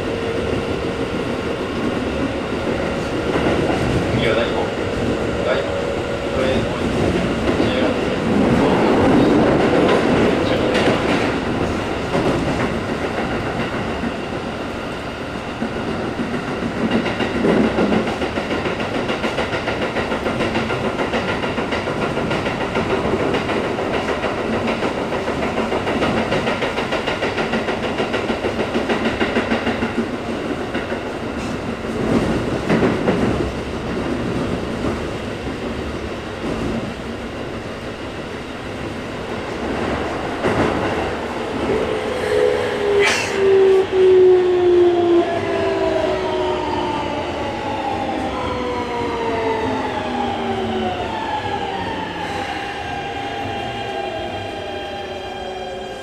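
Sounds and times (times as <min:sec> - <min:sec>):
train wheels rumbling on rail: 0:00.0 - 0:56.0
rail-joint clickety-clack: 0:00.4 - 0:14.6, 0:15.4 - 0:37.1, 0:39.4 - 0:44.3.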